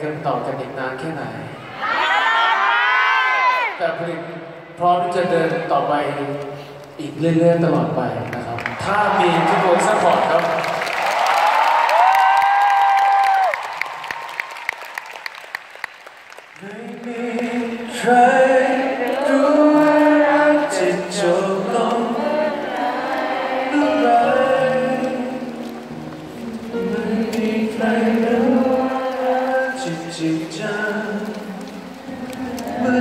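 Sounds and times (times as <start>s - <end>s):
scattered handclaps: 10.5s - 17.7s
slow song with choir-like singing: 16.6s - 33.0s.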